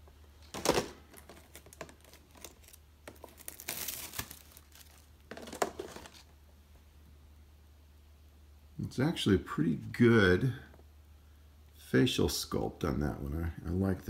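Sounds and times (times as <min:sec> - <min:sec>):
plastic packaging crinkling: 0:00.4 - 0:06.3.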